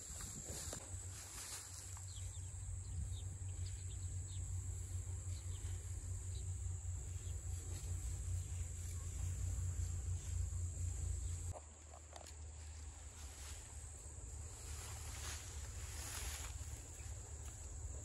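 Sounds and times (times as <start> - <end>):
insects trilling: 0.0 - 18.0
low rumble: 2.6 - 11.5.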